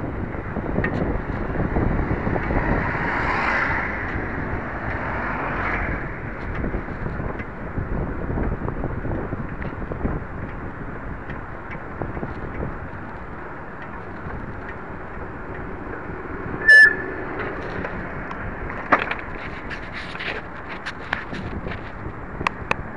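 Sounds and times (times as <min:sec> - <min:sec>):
steady rushing noise: 0:00.0 - 0:22.9
handlebar clicks and rattles: 0:08.4 - 0:22.8
high-pitched bicycle bell ring: 0:16.6 - 0:17.2.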